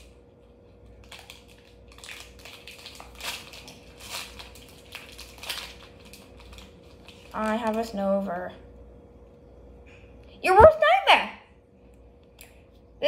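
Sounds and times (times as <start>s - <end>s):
cards rustling in hands: 0.9s - 8.2s.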